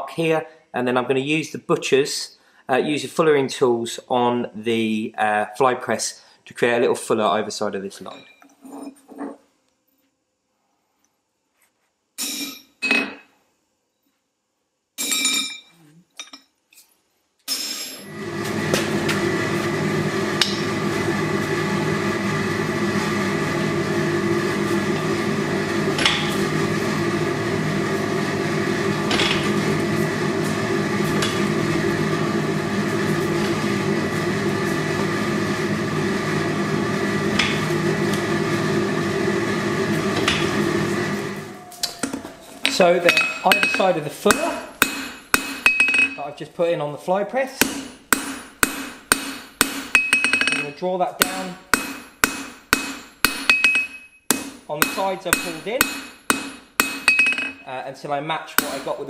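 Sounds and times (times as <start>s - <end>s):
hammer striking chisel on anvil: 20.4s - 20.6s, 26.0s - 26.4s, 41.9s - 46.2s, 47.6s - 57.6s, 58.6s - 59.0s.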